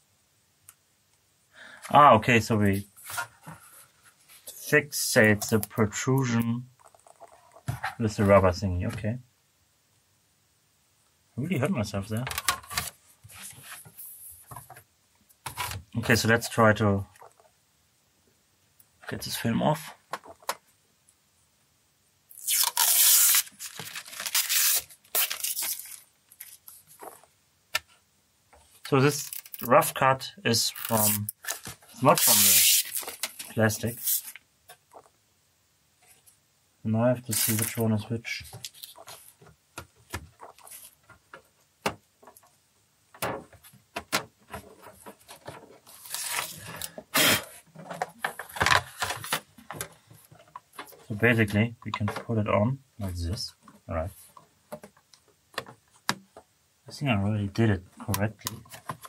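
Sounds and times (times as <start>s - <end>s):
protective film peeling off: 22.3s - 27.2s, 29.1s - 29.7s, 30.7s - 34.4s, 37.3s - 37.8s
rustling: 22.4s - 28.0s, 37.3s - 52.3s.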